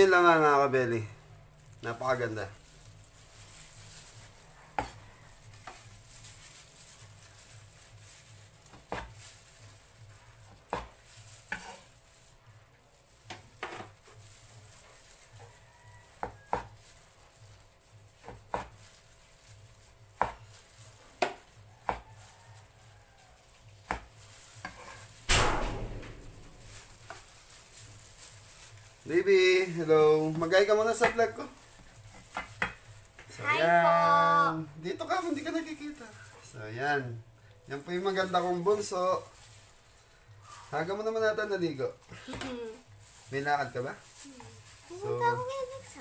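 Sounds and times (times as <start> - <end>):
knife scraping across board: 10.7 - 11.9, 24.6 - 25.1.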